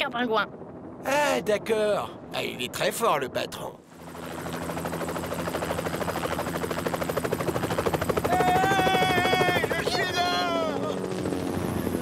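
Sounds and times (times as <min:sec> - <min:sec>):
cartoon helicopter rotor chopping: 0:03.9 - 0:12.0.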